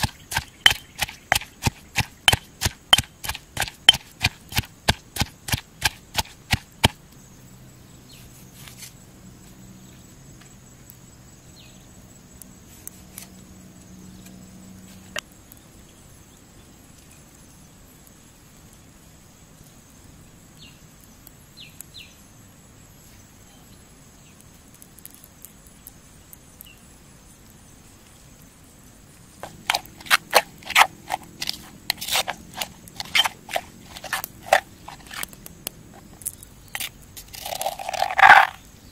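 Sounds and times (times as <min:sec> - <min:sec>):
metal spoon mashing against stone: 0:00.0 - 0:06.7, 0:29.4 - 0:35.3, 0:36.7 - 0:38.6
pestle pounding in stone mortar: 0:00.0 - 0:07.0, 0:29.4 - 0:35.2.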